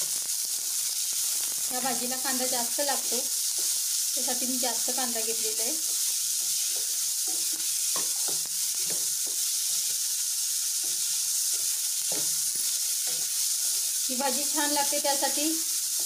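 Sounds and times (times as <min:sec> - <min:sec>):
vegetables sizzling in hot oil: 0:00.0 - 0:16.0.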